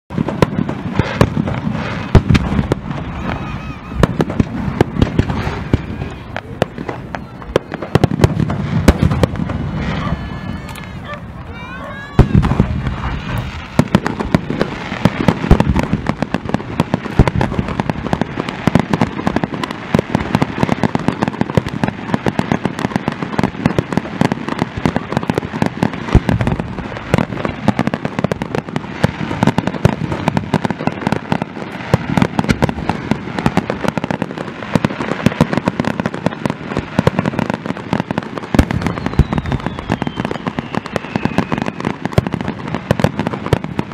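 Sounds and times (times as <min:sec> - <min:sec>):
fireworks bangs and crackles: 0:00.0 - 0:43.9
faint falling whistle: 0:38.8 - 0:41.8.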